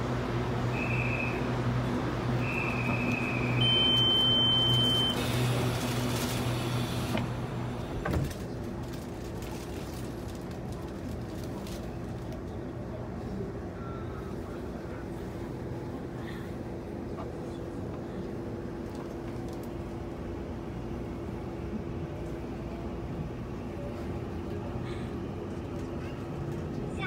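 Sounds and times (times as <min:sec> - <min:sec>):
train electric hum: 0:00.0 - 0:27.0
short high beeps: 0:03.6 - 0:05.2.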